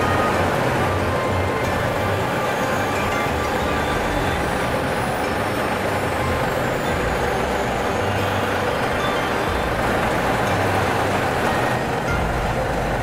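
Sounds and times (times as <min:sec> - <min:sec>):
truck diesel engine running: 0:00.0 - 0:13.0.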